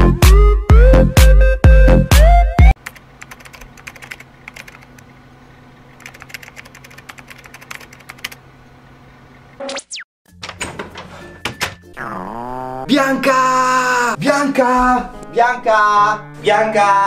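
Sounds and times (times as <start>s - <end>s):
keyboard typing clicks: 2.8s - 5.0s, 6.0s - 8.4s.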